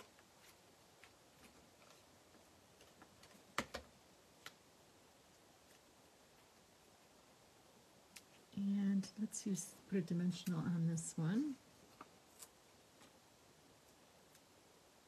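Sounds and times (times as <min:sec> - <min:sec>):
paper clicks and taps: 0:02.8 - 0:04.6.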